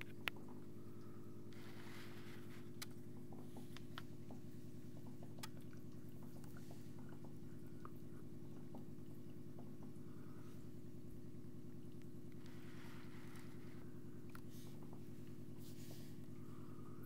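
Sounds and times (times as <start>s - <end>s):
aquarium pump humming: 0.0s - 17.0s
water dripping: 2.8s - 10.4s.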